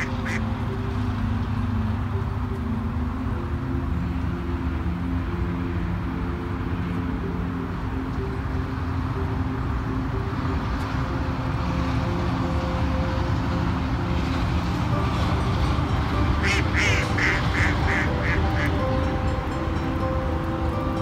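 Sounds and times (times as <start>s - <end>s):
duck quacking: 0.0s - 0.4s, 16.4s - 18.7s.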